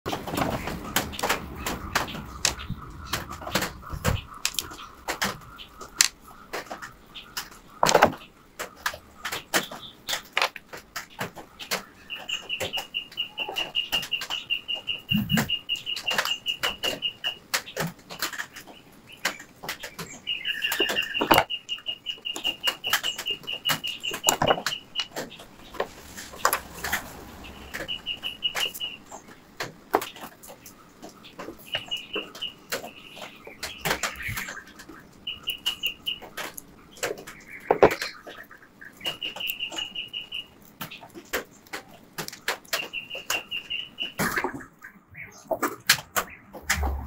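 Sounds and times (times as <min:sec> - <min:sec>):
high rapidly pulsing chirp: 0:27.4 - 0:29.1.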